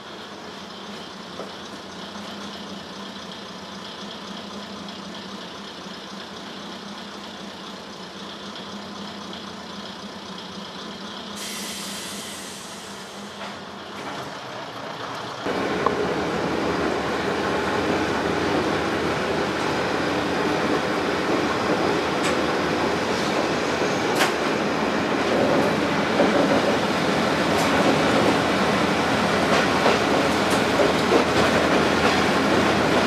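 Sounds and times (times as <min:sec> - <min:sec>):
diesel railcar rumble: 0:00.0 - 0:33.0
high hiss: 0:11.4 - 0:13.4.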